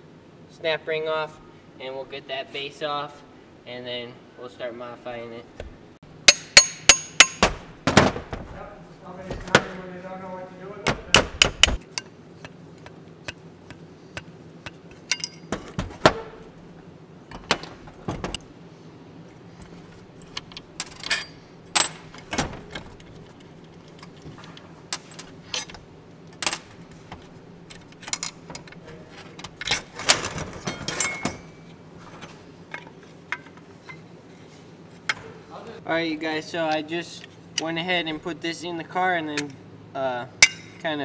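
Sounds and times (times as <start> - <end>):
metal tools clicking: 14.7 - 15.5, 19.6 - 25.8.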